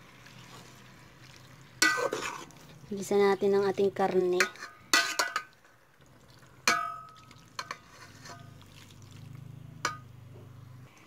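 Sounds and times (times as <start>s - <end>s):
metal spoon knocking on pot: 6.7s - 7.8s, 9.8s - 10.1s.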